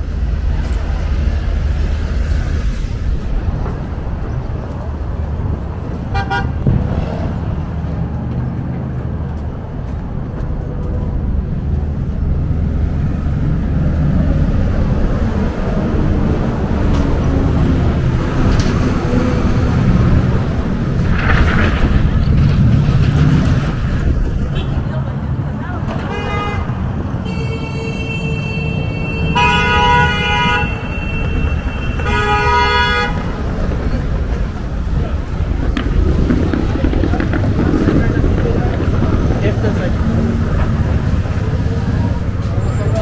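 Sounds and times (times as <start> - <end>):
low engine rumble: 0.0 - 27.3, 30.6 - 43.0
city street traffic: 0.0 - 43.0
car horn toot: 6.1 - 6.6, 26.1 - 33.4.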